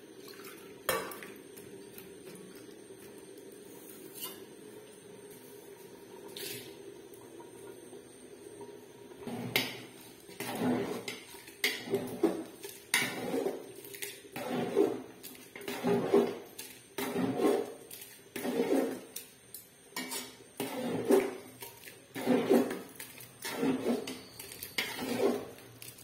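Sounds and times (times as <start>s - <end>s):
metal spoon scraping a pot: 4.0s - 4.5s, 6.2s - 6.7s, 9.2s - 26.0s.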